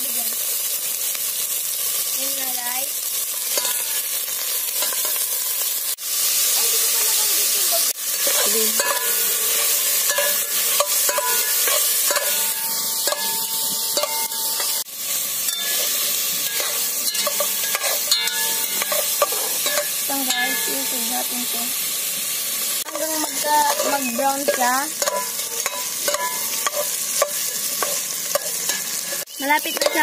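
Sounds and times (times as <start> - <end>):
meat sizzling in a pot: 0.0 - 30.0
metal spatula scraping a pot: 3.4 - 4.1, 8.1 - 20.8, 22.8 - 30.0.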